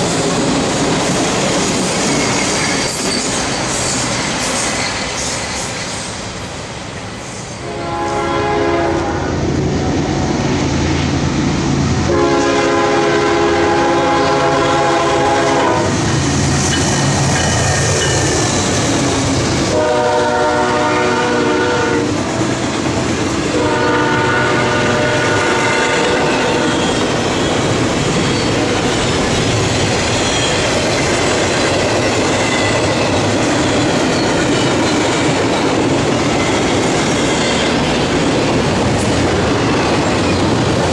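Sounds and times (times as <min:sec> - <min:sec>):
train wheels clattering on rails: 0:00.0 - 0:07.3, 0:15.3 - 0:40.9
locomotive air horn blasts: 0:07.6 - 0:09.4, 0:12.1 - 0:16.0, 0:19.7 - 0:22.2, 0:23.5 - 0:26.9.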